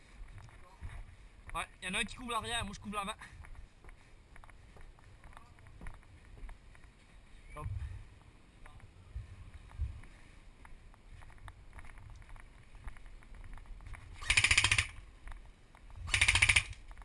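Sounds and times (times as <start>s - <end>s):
airsoft gun full-auto bursts: 14.2s - 15.0s, 16.1s - 16.8s.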